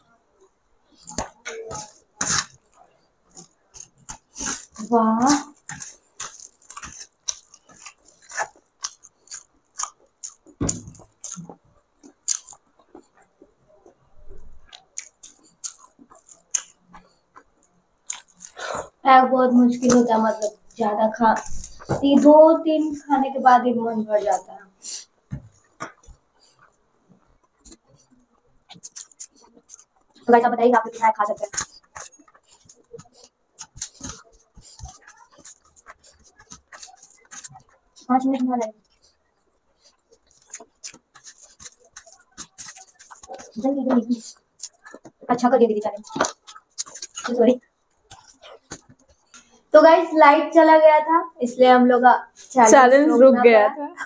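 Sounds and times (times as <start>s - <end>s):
fingers squishing rice: 0.9s - 14.0s, 14.6s - 18.9s, 24.2s - 49.6s
chewing and mouth smacks: 0.9s - 19.0s, 21.4s - 22.0s, 24.2s - 49.7s.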